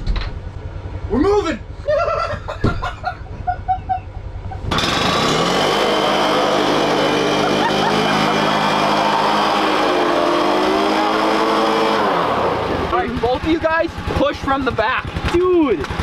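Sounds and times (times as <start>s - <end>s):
utility vehicle engine revving: 4.4s - 16.0s
tires spinning in snow: 4.6s - 15.3s.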